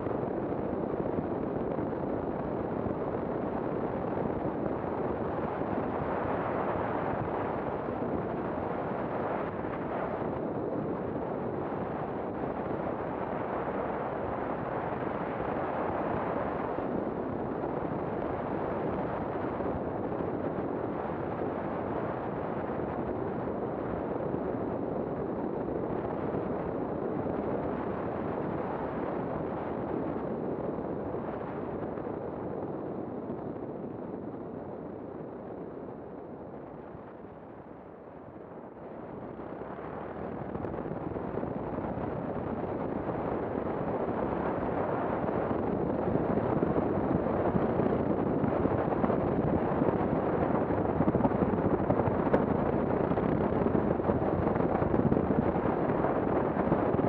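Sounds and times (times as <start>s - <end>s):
wind and road noise: 0.0s - 57.0s.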